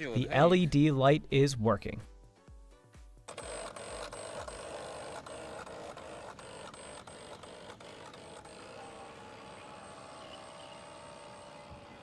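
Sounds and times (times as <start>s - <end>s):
electric motor buzz and whine: 3.2s - 12.0s.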